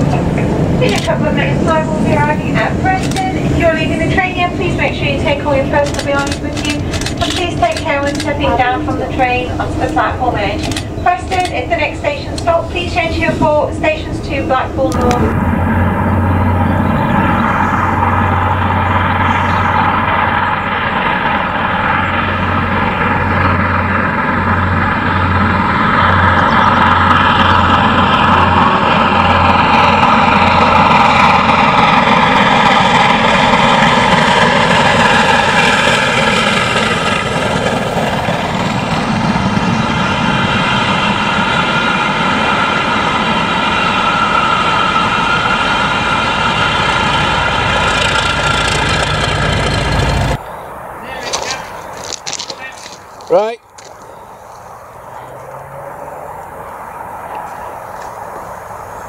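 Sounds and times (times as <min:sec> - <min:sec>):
steam locomotive passing: 0:00.0 - 0:59.0.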